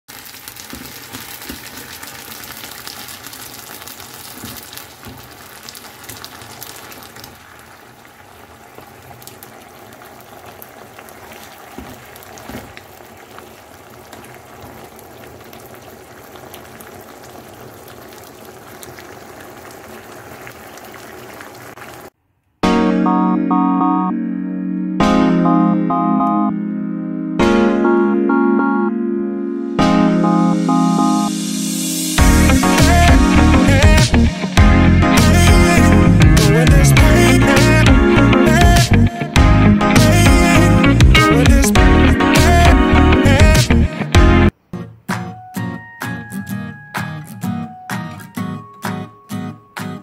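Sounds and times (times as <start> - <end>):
food sizzling in a wok: 0.1 - 22.1.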